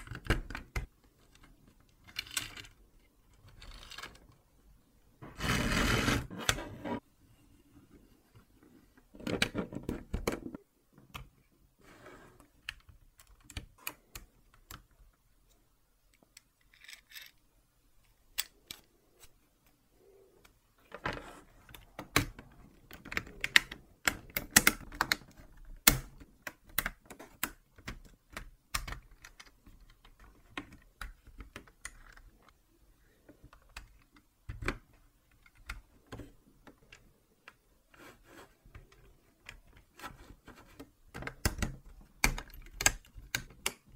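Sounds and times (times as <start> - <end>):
plastic parts clicking together: 0.0 - 4.5, 16.0 - 19.3, 20.4 - 32.6, 38.7 - 43.9.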